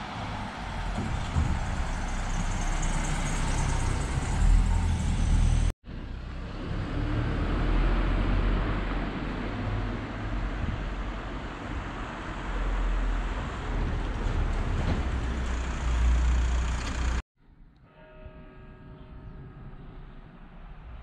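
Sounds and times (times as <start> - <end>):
van driving past: 0.0 - 10.4, 13.2 - 17.2
street noise with low rumble: 0.0 - 21.0.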